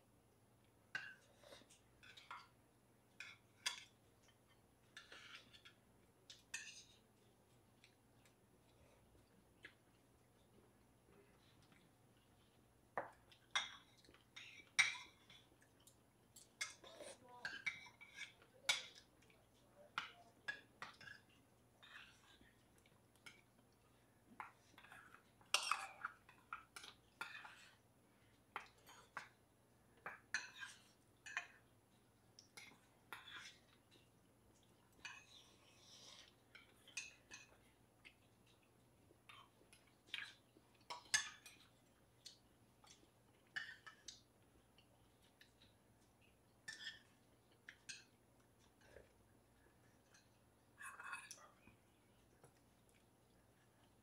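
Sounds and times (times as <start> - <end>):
spoons clinking on metal bowls: 13.0 - 15.4, 16.4 - 19.1, 24.4 - 27.7, 40.9 - 41.7.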